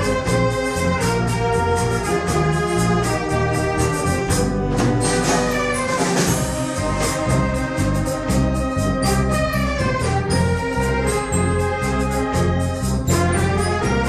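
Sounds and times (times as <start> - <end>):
bass line: 0.0 - 14.0
brass: 0.0 - 14.0
clarinets and saxophones: 0.0 - 14.0
steady percussion beat: 0.0 - 14.0.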